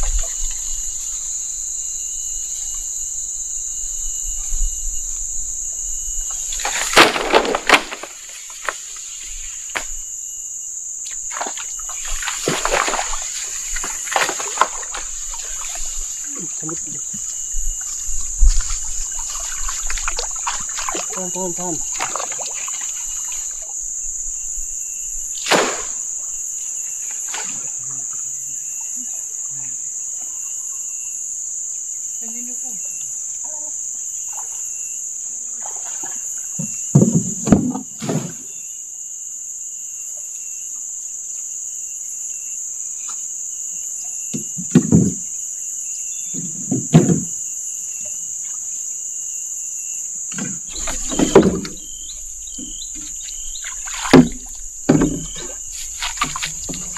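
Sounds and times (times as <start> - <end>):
insects droning: 0.0 - 56.9
bamboo poles knocking wooden boat: 46.4 - 47.3, 50.4 - 56.9.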